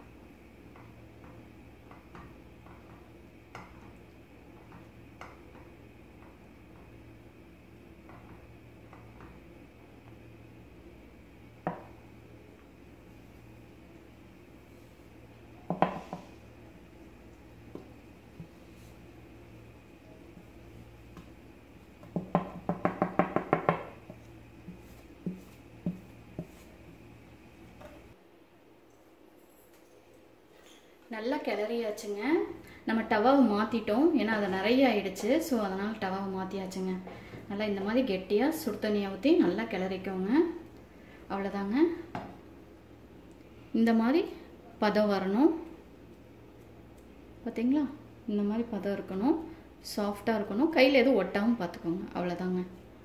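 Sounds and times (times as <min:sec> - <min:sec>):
steady low hum: 0:00.0 - 0:53.0
wooden spatula tapping plate: 0:15.7 - 0:16.3, 0:22.0 - 0:26.7.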